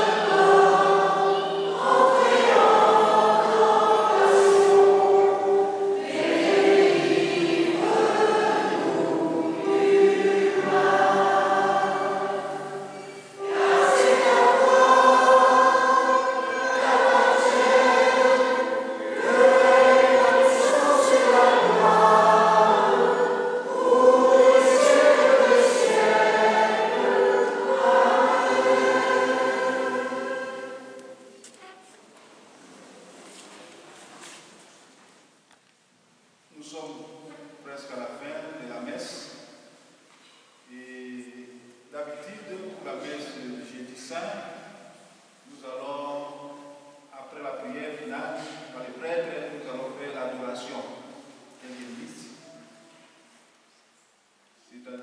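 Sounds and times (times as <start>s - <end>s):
church choir singing a hymn: 0.0s - 31.5s, 40.7s - 53.4s.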